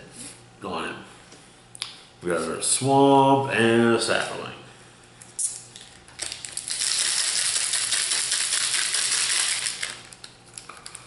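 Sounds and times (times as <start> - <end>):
foil wrapper crinkling: 5.8 - 11.0.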